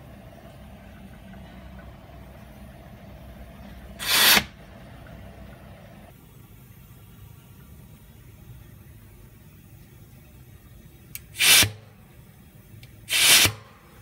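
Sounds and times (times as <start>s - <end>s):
steady low hum: 0.0s - 14.0s
safety valve hiss: 11.1s - 11.8s, 13.1s - 13.7s.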